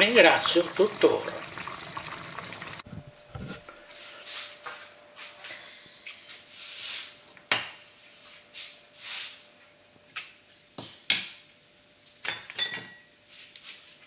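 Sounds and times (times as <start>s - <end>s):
sauce bubbling in pan: 0.0s - 2.9s.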